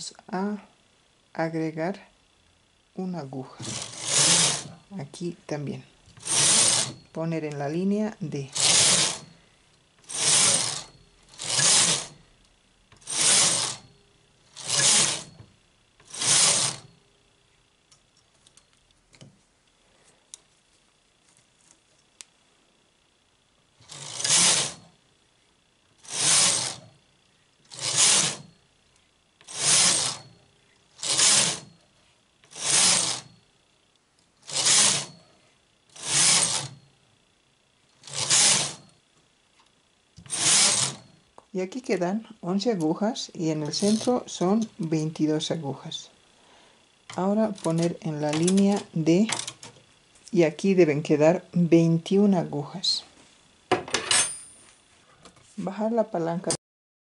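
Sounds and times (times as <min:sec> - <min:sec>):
knitting machine carriage clattering: 0:03.6 - 0:04.8, 0:06.2 - 0:07.0, 0:08.5 - 0:09.2, 0:10.0 - 0:12.2, 0:13.0 - 0:13.8, 0:14.6 - 0:15.3, 0:16.0 - 0:16.8, 0:23.9 - 0:24.8, 0:26.1 - 0:26.8, 0:27.7 - 0:28.5, 0:29.5 - 0:30.2, 0:31.0 - 0:31.7, 0:32.5 - 0:33.2, 0:34.5 - 0:35.1, 0:36.0 - 0:36.8, 0:40.3 - 0:41.0, 0:43.7 - 0:44.2, 0:47.2 - 0:49.7.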